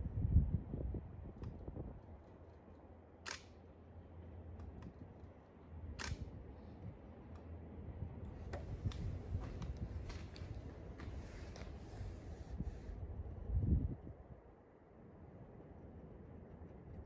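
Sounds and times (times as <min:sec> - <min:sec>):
low steady rumble: 0:00.0 - 0:17.0
camera shutter clicking: 0:03.3 - 0:03.6, 0:06.0 - 0:06.3.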